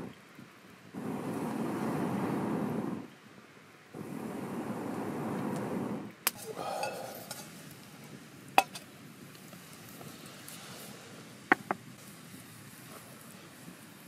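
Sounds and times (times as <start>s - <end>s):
air blown through pipe into fire: 0.9s - 3.2s, 3.9s - 8.2s.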